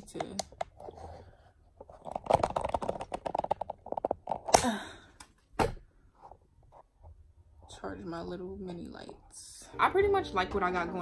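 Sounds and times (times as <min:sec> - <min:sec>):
plastic clicks and rattles: 0:01.9 - 0:04.6.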